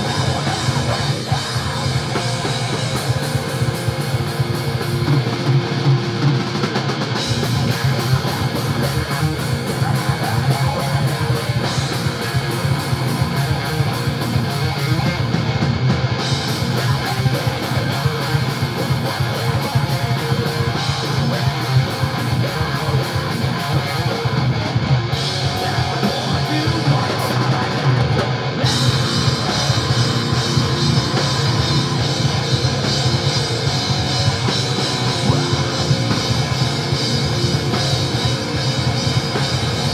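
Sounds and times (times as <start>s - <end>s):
distorted electric guitars: 0.0s - 39.9s
drum kit: 0.0s - 39.9s
person singing into a microphone: 25.3s - 29.0s.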